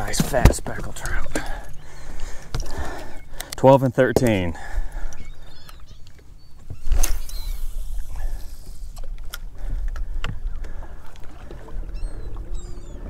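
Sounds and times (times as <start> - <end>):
water lapping against boat: 0.0 - 3.6, 4.3 - 13.0
low wind rumble: 6.6 - 13.0.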